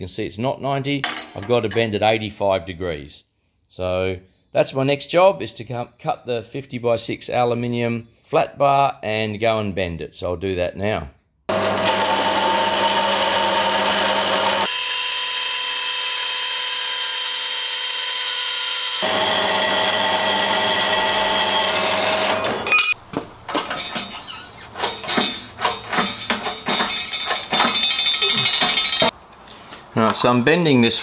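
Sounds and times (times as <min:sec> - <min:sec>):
bandsaw cutting metal: 0:11.5 - 0:29.1
knocks and clicks: 0:22.4 - 0:29.1.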